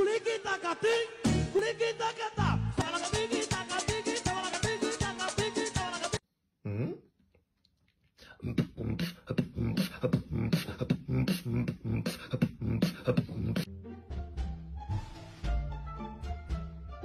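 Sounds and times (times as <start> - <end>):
background music: 0.0 - 6.2, 13.0 - 17.0
beatboxing: 8.2 - 13.7.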